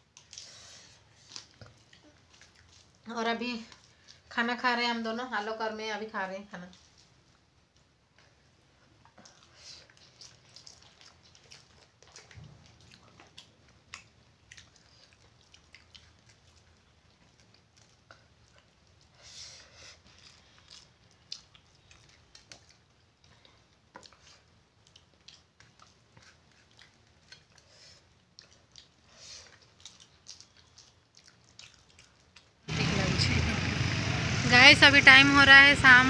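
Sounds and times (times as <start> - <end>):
person chewing: 0.0 - 3.0, 9.0 - 32.6
soft lip smacking: 9.0 - 32.6.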